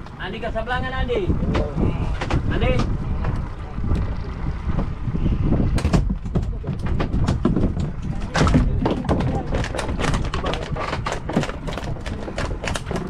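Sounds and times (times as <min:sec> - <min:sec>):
wind rumbling on microphone: 0:00.0 - 0:13.0
sharp knocks: 0:05.6 - 0:13.0.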